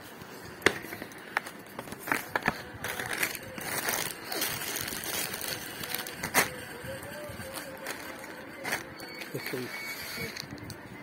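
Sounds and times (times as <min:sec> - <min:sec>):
packaging crinkling and rustling: 0:00.6 - 0:10.8.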